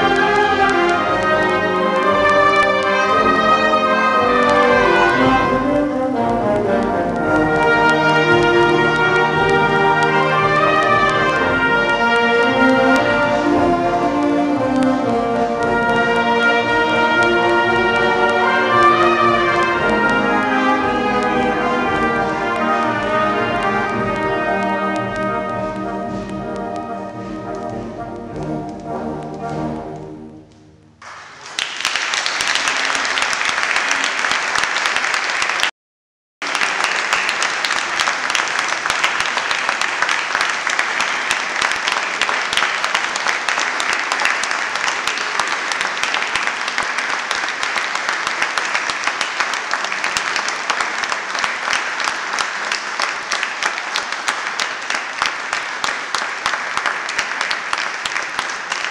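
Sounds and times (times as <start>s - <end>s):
audience applauding: 0.0s - 29.8s, 31.0s - 35.7s, 36.4s - 58.9s
brass band final chord: 0.0s - 31.0s.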